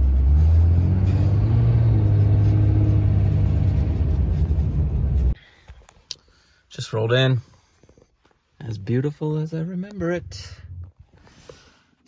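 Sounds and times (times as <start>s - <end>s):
truck engine accelerating: 0.0s - 5.4s
tyre and road noise: 0.0s - 5.4s.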